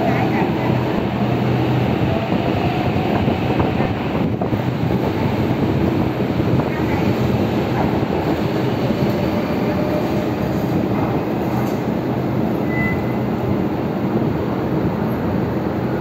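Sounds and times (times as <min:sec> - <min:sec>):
electric train rumbling: 0:00.0 - 0:16.0
high squeal: 0:12.6 - 0:13.2.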